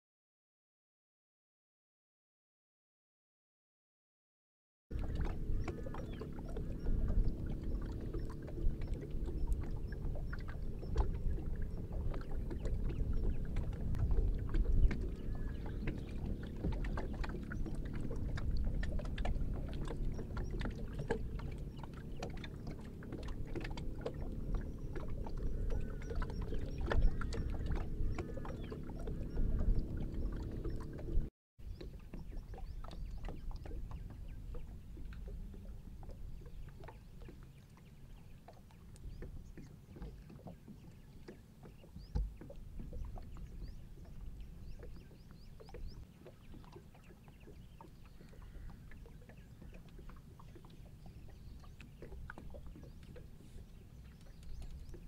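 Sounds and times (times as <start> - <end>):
low rumble: 4.9 - 31.3
water lapping against boat: 4.9 - 55.0.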